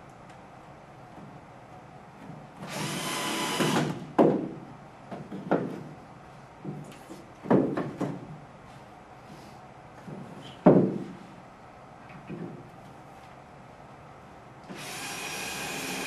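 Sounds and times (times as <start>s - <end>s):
cordless drill driving screw: 2.7s - 3.9s, 14.7s - 16.0s
knocks on wooden frame: 3.7s - 5.8s, 7.4s - 8.3s, 10.1s - 11.2s.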